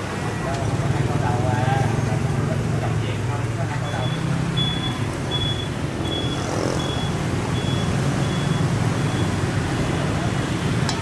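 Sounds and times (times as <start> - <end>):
street traffic rumble: 0.0 - 11.0
high electronic beeps: 3.8 - 10.1.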